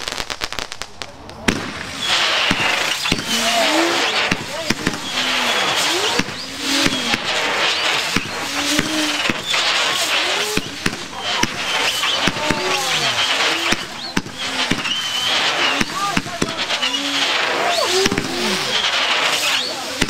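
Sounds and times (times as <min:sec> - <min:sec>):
burning pyrotechnics hiss: 0:00.0 - 0:20.0
firework cracks and pops: 0:00.0 - 0:20.0
fireworks whistling: 0:00.0 - 0:20.0.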